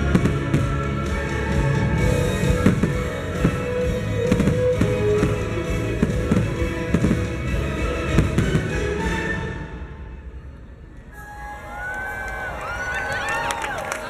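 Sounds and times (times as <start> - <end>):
fireworks bangs: 0.0 - 9.3
music: 0.0 - 12.3.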